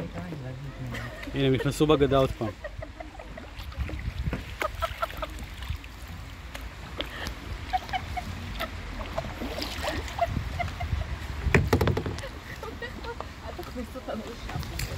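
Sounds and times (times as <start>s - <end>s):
kayak paddles dipping in water: 0.7s - 14.9s
water dripping from paddle blades: 3.2s - 10.8s, 12.2s - 14.9s.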